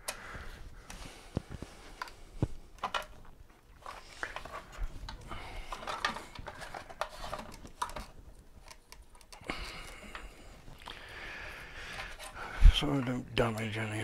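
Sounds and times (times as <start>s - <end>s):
light clicks taps and scrapes: 0.8s - 11.0s.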